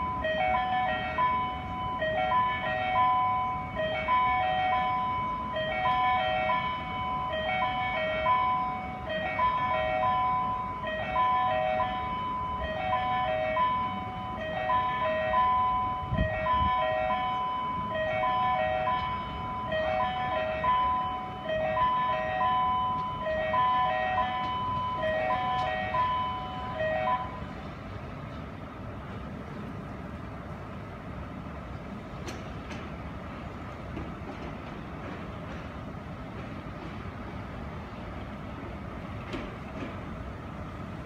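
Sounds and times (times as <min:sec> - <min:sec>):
railway warning chime: 0:00.0 - 0:28.4.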